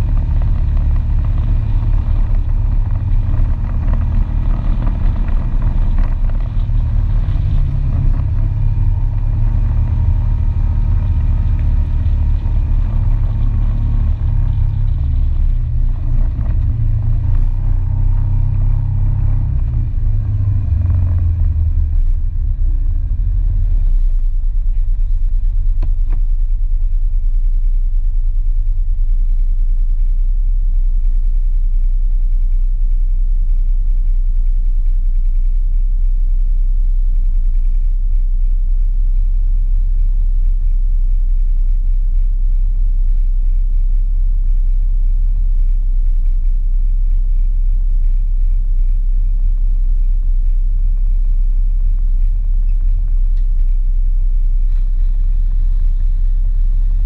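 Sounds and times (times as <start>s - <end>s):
atv engine rumbling: 0.0s - 27.0s, 48.8s - 57.0s.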